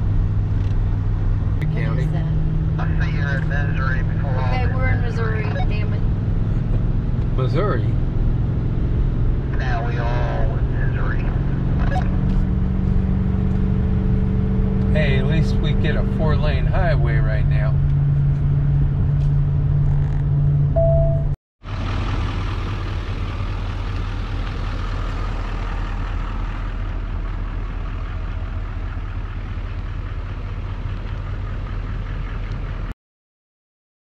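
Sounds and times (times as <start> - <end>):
low rumble and hum: 0.0 - 32.9
road and engine drone: 0.0 - 33.0
short beep: 5.4 - 5.9, 20.7 - 21.4.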